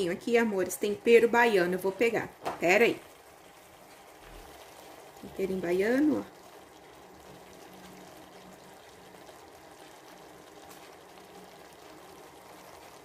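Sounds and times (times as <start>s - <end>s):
chicken sizzling in a pan: 0.0s - 13.0s.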